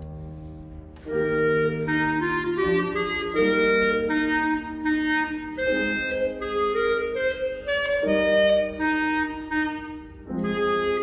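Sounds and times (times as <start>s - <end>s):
lower accompaniment: 0.0s - 11.0s
clarinet melody: 0.4s - 11.0s.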